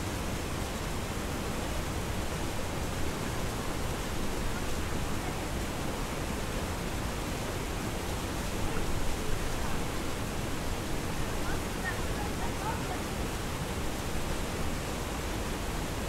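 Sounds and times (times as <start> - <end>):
waterfall rushing: 0.3 - 16.0.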